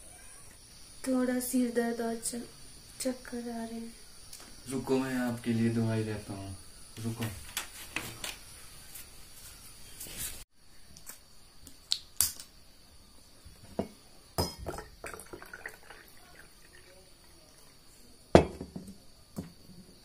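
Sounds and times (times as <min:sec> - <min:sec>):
metal vessels clinking: 0:13.8 - 0:17.7
water pouring into metal tumbler: 0:14.7 - 0:18.1.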